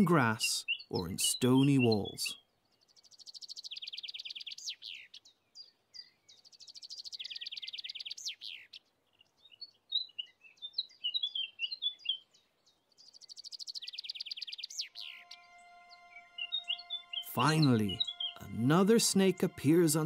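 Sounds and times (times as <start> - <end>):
songbird trilling: 0.0 - 20.0
short high bird chirps: 13.1 - 18.6.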